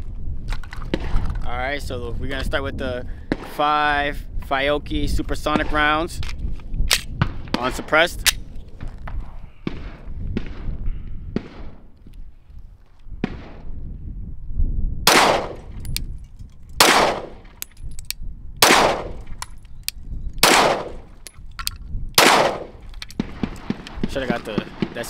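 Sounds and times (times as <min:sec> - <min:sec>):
pistol shots: 0:09.6 - 0:10.7, 0:11.4 - 0:11.9, 0:15.1 - 0:15.7, 0:16.8 - 0:17.6, 0:18.6 - 0:19.3, 0:20.4 - 0:21.1, 0:22.2 - 0:25.0
faint distant gunshots: 0:09.6 - 0:11.9, 0:13.2 - 0:13.7, 0:16.8 - 0:17.5, 0:18.6 - 0:19.2, 0:20.4 - 0:21.0, 0:22.2 - 0:25.0.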